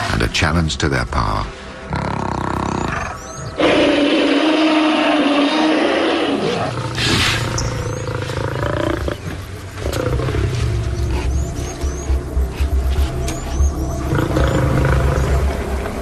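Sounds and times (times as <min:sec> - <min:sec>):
low rumbling growls: 0:01.8 - 0:16.0
wild animal roaring call: 0:01.9 - 0:12.0, 0:13.9 - 0:15.8.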